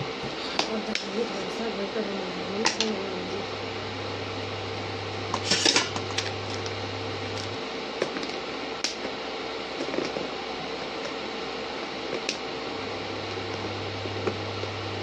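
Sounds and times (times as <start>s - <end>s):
low hum: 0.0s - 7.7s.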